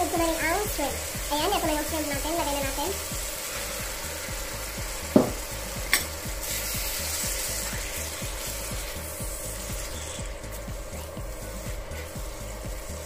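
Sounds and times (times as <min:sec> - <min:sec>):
sudden knock: 0:05.1 - 0:05.4.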